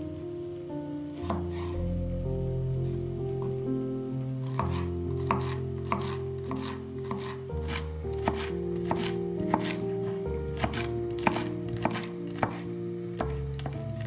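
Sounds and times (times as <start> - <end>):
soft background music: 0.0 - 14.0
knife chopping on wooden board: 1.2 - 1.8, 4.5 - 9.9, 10.6 - 14.0.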